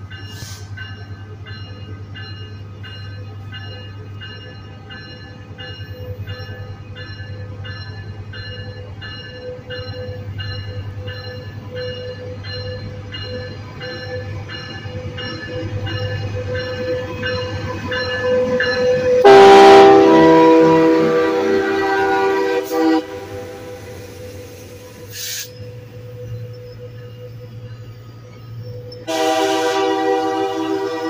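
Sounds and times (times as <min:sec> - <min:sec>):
locomotive bell ringing: 0:00.0 - 0:31.0
loud train air horn chord: 0:19.2 - 0:23.8, 0:29.1 - 0:31.0.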